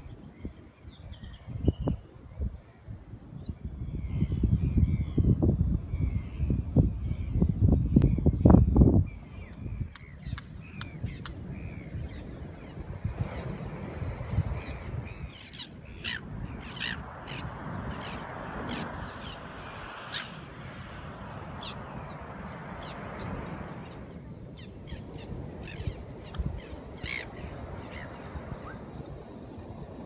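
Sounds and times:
birds calling: 0:09.4 - 0:29.5.

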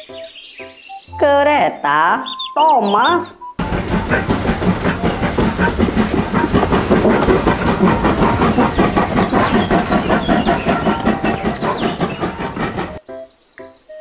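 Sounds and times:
steam hissing: 0:03.6 - 0:13.0
steam locomotive chuffing: 0:03.6 - 0:13.0
wheels clattering on rails: 0:03.6 - 0:13.0.

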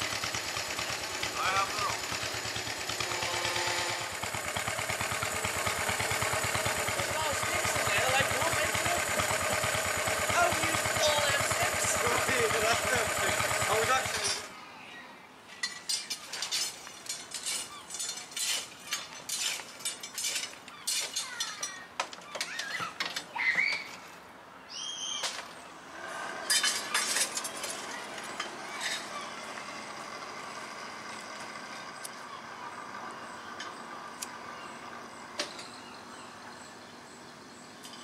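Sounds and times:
metallic clinks and rattles of tools: 0:15.5 - 0:23.3.

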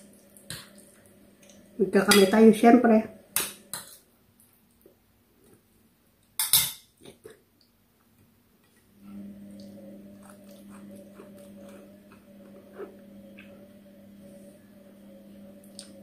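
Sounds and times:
steady low hum: 0:00.0 - 0:04.0, 0:08.9 - 0:16.0.

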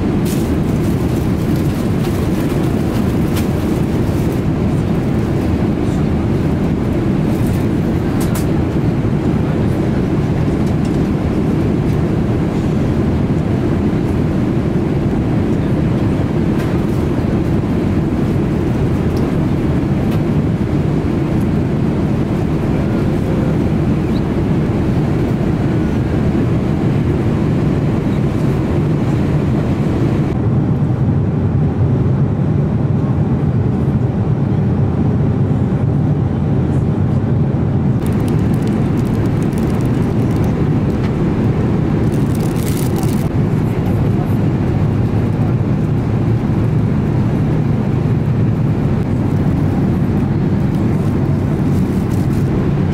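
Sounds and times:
airplane cabin engine rumble: 0:00.0 - 0:52.9.

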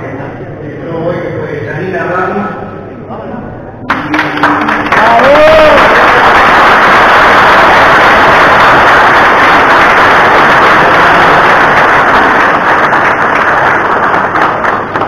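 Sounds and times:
crowd applauding: 0:03.9 - 0:15.0.

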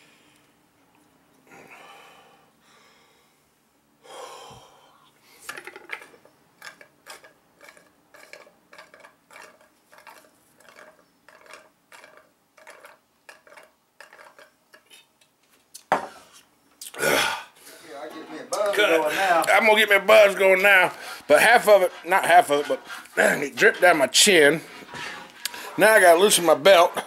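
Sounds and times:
breaths: 0:00.0 - 0:00.6, 0:01.4 - 0:05.7, 0:17.0 - 0:18.0, 0:21.0 - 0:21.3, 0:22.8 - 0:23.2, 0:24.6 - 0:25.8.

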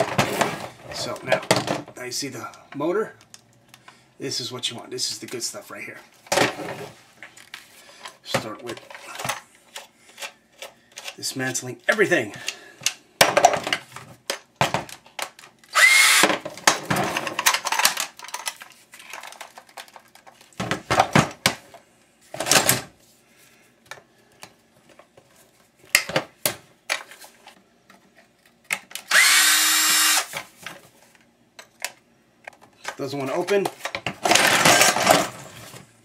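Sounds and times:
power drill spinning: 0:15.7 - 0:16.4, 0:29.1 - 0:30.4
metal parts clattering: 0:17.0 - 0:20.0, 0:34.2 - 0:35.5.

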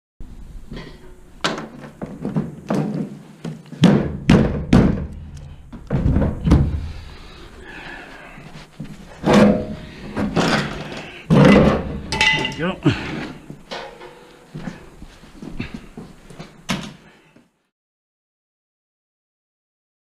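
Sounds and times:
dull knocks and thunks: 0:01.4 - 0:07.0.

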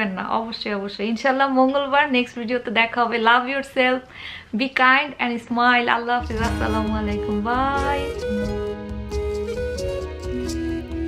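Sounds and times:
plucked guitar music: 0:06.2 - 0:11.0.

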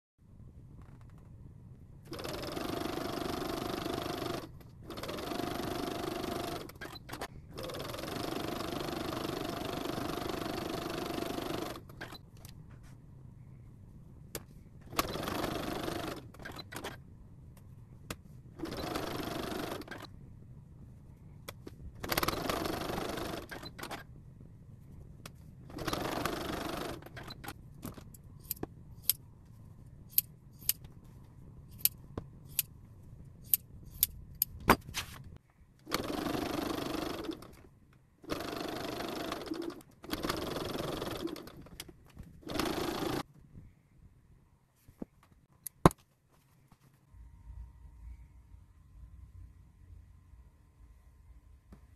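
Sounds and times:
sewing machine stitching: 0:02.1 - 0:12.2, 0:14.9 - 0:17.0, 0:18.6 - 0:20.1, 0:22.0 - 0:24.0, 0:25.7 - 0:27.6, 0:35.8 - 0:37.6, 0:38.2 - 0:43.3.

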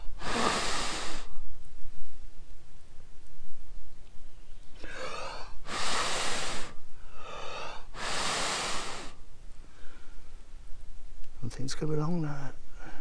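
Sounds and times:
person blowing hard: 0:00.0 - 0:01.4, 0:04.8 - 0:09.2
person drawing in breath: 0:00.0 - 0:01.4, 0:04.8 - 0:10.2.

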